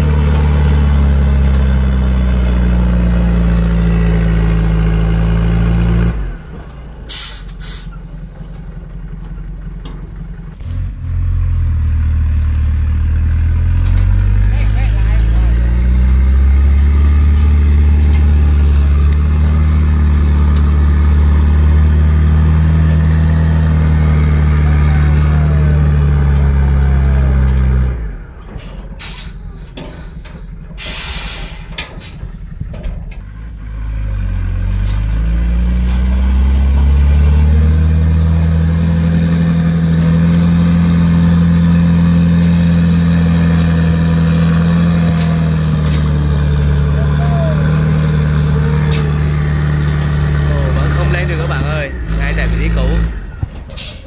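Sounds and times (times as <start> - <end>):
truck diesel engine revving: 0.0 - 54.0
air hiss: 30.8 - 31.7.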